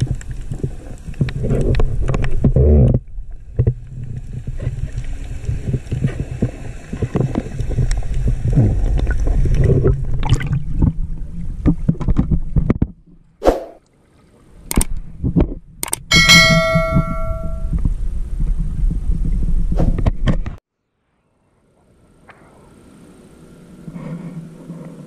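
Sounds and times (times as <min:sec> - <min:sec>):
underwater low rumble: 0:00.0 - 0:13.4, 0:16.4 - 0:19.8
sharp knocks: 0:16.1 - 0:17.7.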